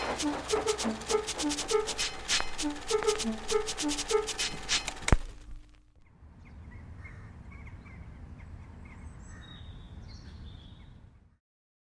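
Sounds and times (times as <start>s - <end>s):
small birds chirping: 6.0s - 11.0s.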